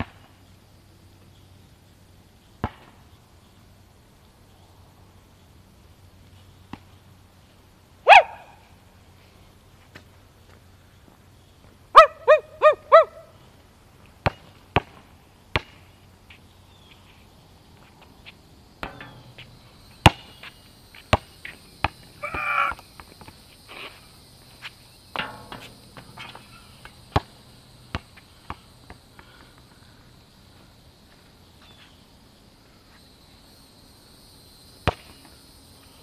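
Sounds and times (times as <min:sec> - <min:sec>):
high insect drone: 0:00.1 - 0:36.0
dog barking: 0:08.1 - 0:08.5, 0:12.0 - 0:13.3
basketball bouncing: 0:14.2 - 0:15.8, 0:18.8 - 0:20.5, 0:21.1 - 0:23.4, 0:25.1 - 0:29.0.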